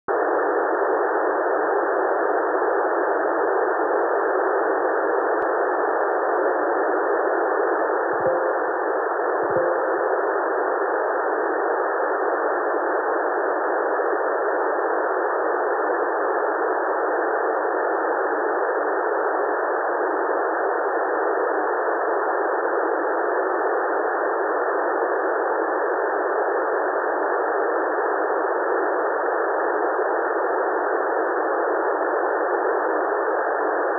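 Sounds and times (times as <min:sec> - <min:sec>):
radio static hiss: 0:00.1 - 0:16.8
faint short blips: 0:08.2 - 0:10.4.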